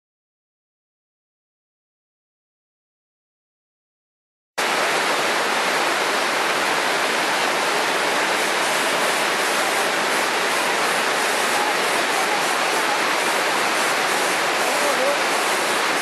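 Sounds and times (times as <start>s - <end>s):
waterfall rushing: 4.6s - 16.0s.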